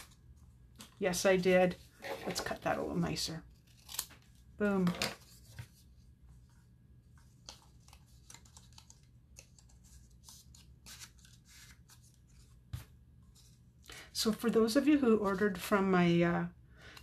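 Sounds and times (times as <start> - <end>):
paper clicks and rustles: 7.1 - 13.6.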